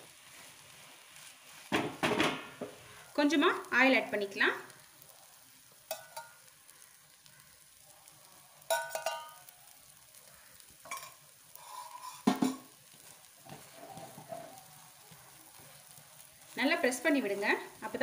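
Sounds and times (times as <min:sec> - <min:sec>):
omelette sizzling in a pan: 0:00.0 - 0:18.0
spatula scraping a pan: 0:10.9 - 0:14.6.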